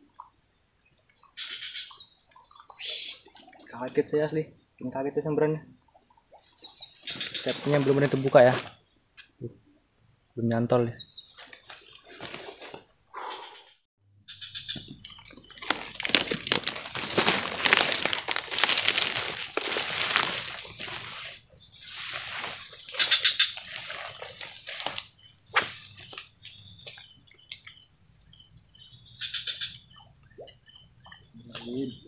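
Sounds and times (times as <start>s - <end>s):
tall grass rustling underfoot: 6.6s - 8.8s, 11.2s - 13.0s, 14.5s - 27.4s
small crackles and snaps: 14.7s - 20.5s.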